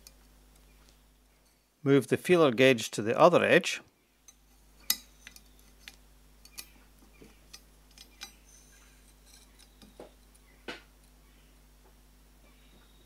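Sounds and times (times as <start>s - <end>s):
metal tools clicking and clinking: 7.5s - 10.5s.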